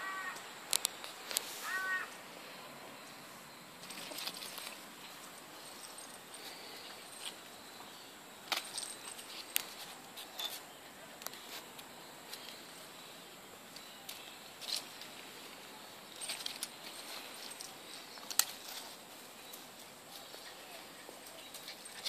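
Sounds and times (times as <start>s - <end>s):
faint steady hiss: 0.0s - 22.0s
light clicks and jingles: 3.8s - 7.9s, 8.5s - 10.6s, 16.0s - 22.0s.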